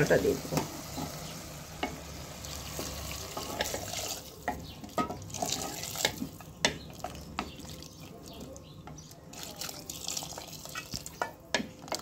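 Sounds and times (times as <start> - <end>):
water pouring and splashing: 2.3 - 6.4, 9.3 - 11.2.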